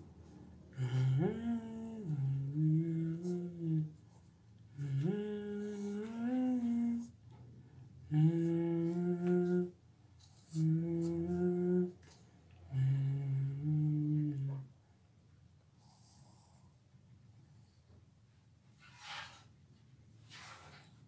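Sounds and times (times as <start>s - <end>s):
man humming: 0.7s - 4.1s, 4.7s - 7.2s, 8.0s - 14.7s.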